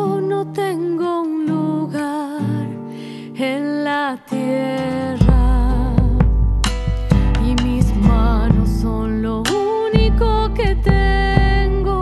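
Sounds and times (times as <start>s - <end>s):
acoustic guitar folk song: 0.0s - 12.0s
percussion: 5.2s - 12.0s.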